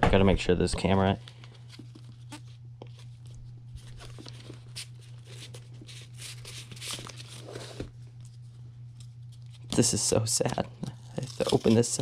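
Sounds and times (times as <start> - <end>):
paper and card rustling: 1.2 - 12.0.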